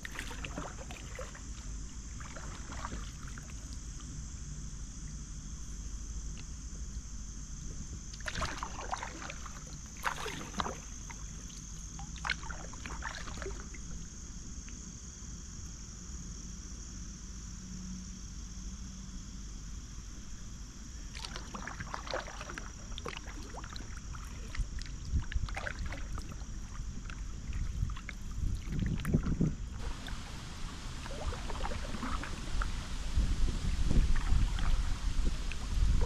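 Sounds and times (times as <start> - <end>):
paddle strokes splashing water: 0.0 - 4.1, 8.2 - 14.0, 21.1 - 36.0
wind rumble on microphone: 0.0 - 14.3, 21.8 - 36.0.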